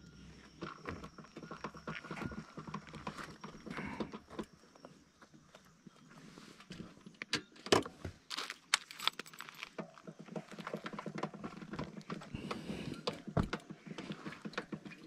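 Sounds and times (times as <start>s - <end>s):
motorcycle rattling on wooden planks: 0.6s - 4.4s, 9.2s - 15.0s.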